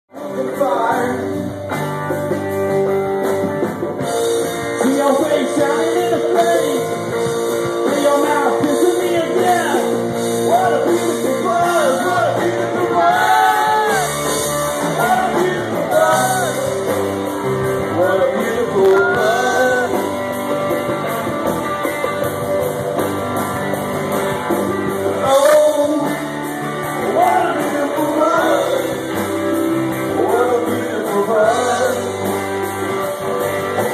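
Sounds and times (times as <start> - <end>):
bass guitar: 0.0 - 33.9
person singing: 0.1 - 1.4, 4.8 - 7.0, 7.8 - 14.2, 14.8 - 16.9, 17.8 - 20.2, 25.1 - 26.3, 27.0 - 29.1, 30.0 - 32.4
drum kit: 0.1 - 33.9
electric guitars: 0.1 - 33.9.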